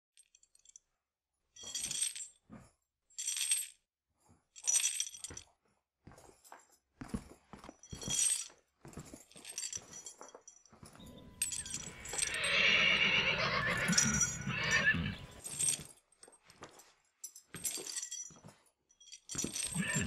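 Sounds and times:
loud neigh-like animal call: 11.6s - 15.4s, 19.7s - 20.0s.

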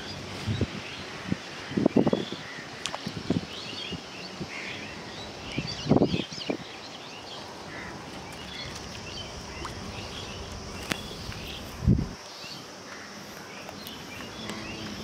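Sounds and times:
birds chirping and calling: 0.0s - 15.0s.

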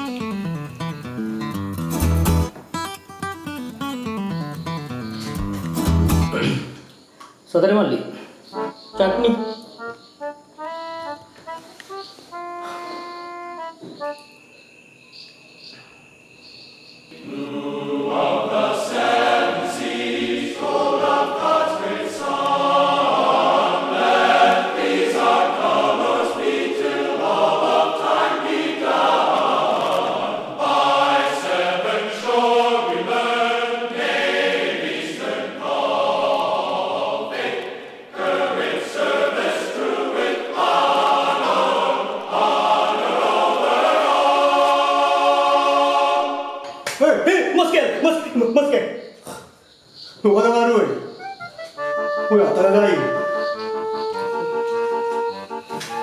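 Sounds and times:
choral singing: 17.1s - 46.9s.

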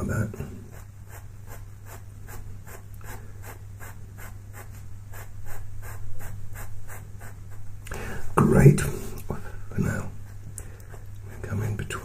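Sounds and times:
steady low hum: 0.0s - 12.0s
pencil scratching on paper: 0.6s - 7.8s, 9.8s - 11.5s.

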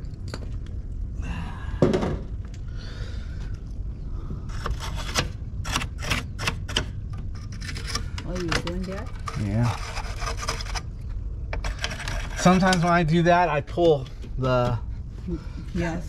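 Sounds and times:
loud knock: 1.8s - 2.3s
clicks and scrapes in breaker panel: 4.5s - 10.9s, 11.6s - 13.0s.

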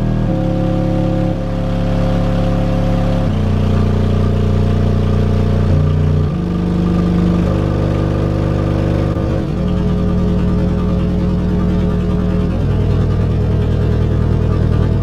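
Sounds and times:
subwoofer playing deep bass notes: 0.0s - 15.0s.

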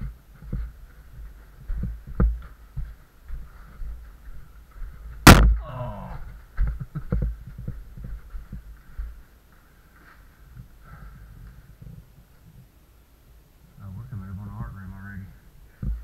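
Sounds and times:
camera thumps and knocks: 5.2s - 5.6s
loud sharp knock: 5.3s - 5.7s.

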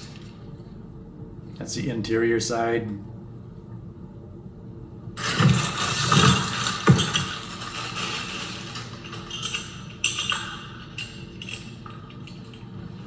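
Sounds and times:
plastic bag crinkling: 5.2s - 9.5s
small metal clinks and clicks: 8.0s - 12.7s.

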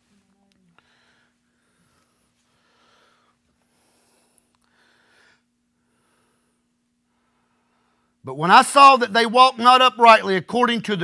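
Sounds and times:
low electrical hum: 0.0s - 11.0s
man breathing softly: 0.7s - 8.2s.

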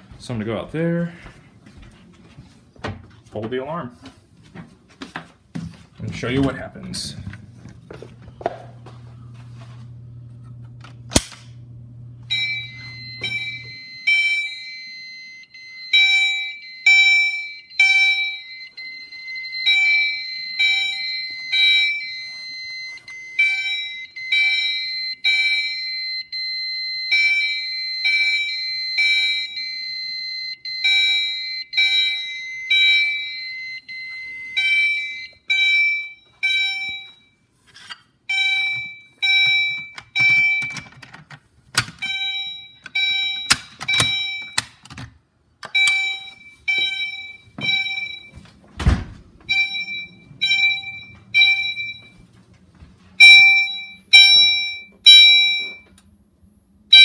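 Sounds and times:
fire alarm horns pulsing: 6.1s - 37.6s, 38.2s - 41.0s, 41.8s - 44.9s, 45.6s - 48.7s, 49.3s - 57.0s
steady alarm tone: 11.2s - 37.6s, 38.2s - 40.9s, 41.9s - 44.7s, 45.7s - 57.0s.

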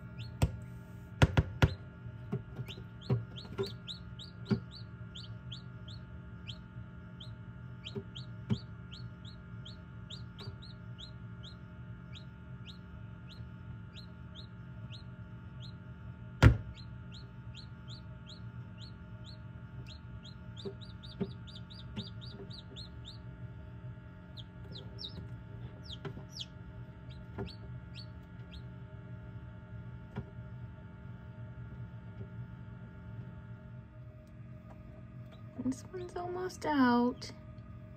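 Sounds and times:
chicks peeping: 0.0s - 0.6s, 1.3s - 28.8s
incubator hum: 0.0s - 37.9s.

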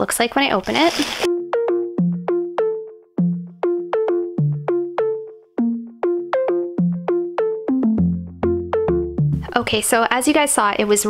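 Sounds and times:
plucked synth melody: 1.3s - 9.9s.

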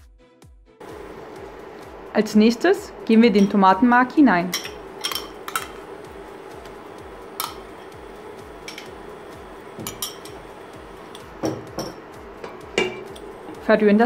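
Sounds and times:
faint steady hum: 0.8s - 14.0s
spoon clinking against pot: 4.5s - 5.8s, 7.4s - 7.9s, 8.6s - 9.0s, 9.8s - 10.5s, 11.1s - 13.3s.

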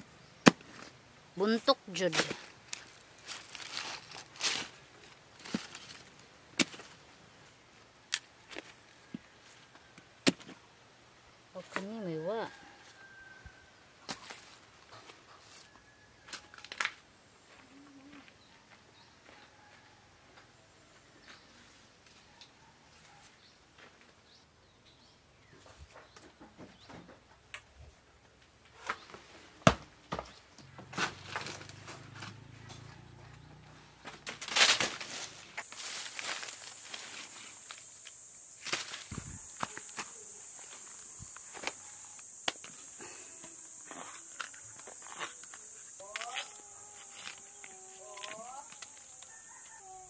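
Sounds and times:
leaves rustling: 0.0s - 9.7s, 34.0s - 50.0s.

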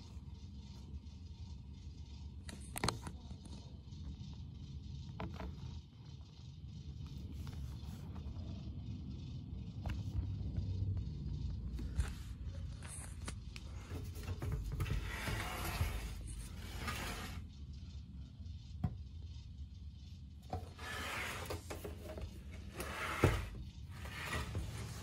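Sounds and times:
low steady rumble: 0.0s - 25.0s
plastic fan rubbing and scraping: 11.4s - 17.9s, 20.4s - 25.0s.

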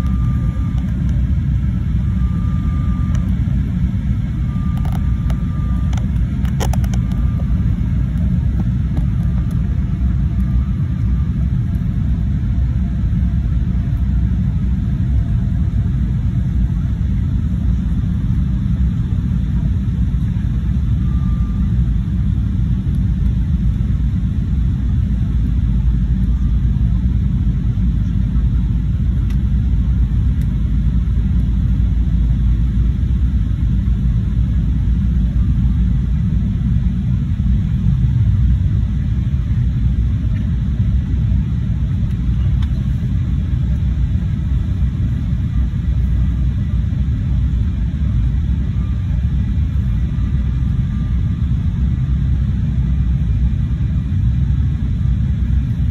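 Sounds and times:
jet cabin engine rumble: 0.0s - 55.9s.

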